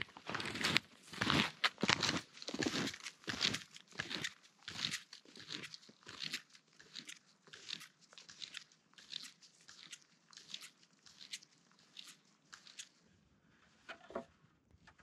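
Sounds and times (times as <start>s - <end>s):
snowshoe footsteps crunching in snow: 0.0s - 4.3s.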